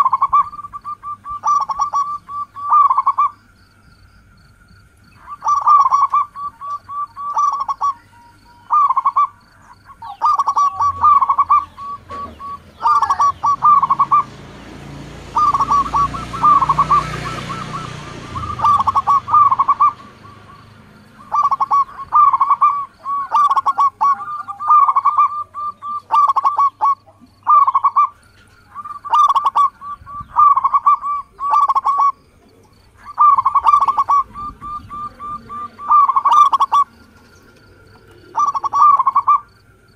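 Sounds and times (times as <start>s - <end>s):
dove cooing: 0.0s - 3.5s, 4.5s - 39.9s
broad rushing noise: 10.9s - 22.3s.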